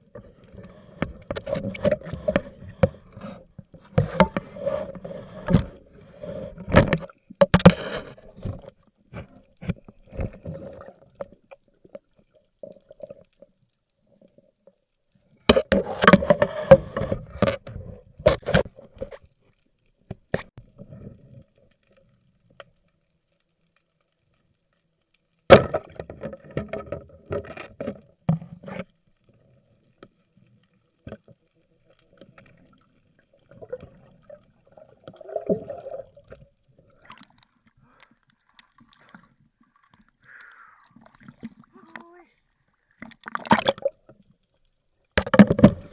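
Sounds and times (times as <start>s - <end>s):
underwater knocks and clicks: 0.0s - 13.6s, 15.4s - 19.3s, 25.5s - 30.2s, 43.0s - 44.4s, 45.1s - 45.9s
bubbling water: 32.3s - 37.9s, 43.0s - 44.1s.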